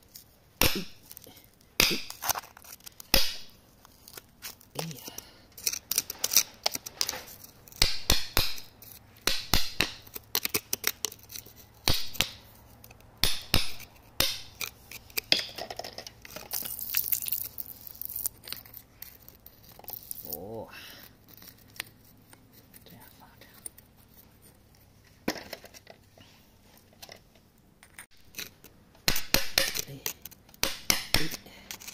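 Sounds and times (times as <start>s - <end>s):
metal pick scraping stone and grit: 0.0s - 7.9s, 10.0s - 22.7s, 27.9s - 31.9s.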